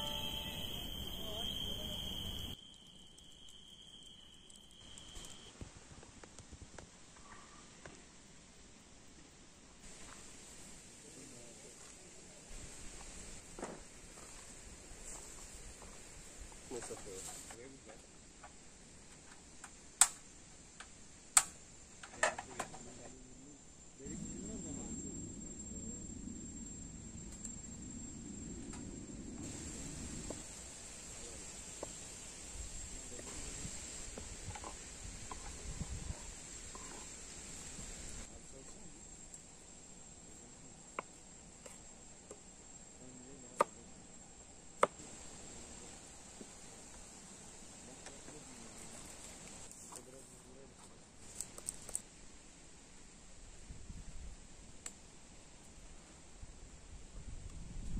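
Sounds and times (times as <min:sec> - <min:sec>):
high-pitched insect drone: 0:00.0 - 0:05.5, 0:24.0 - 0:34.8
sharp clicks of camping stove: 0:19.3 - 0:22.4, 0:54.8 - 0:55.0.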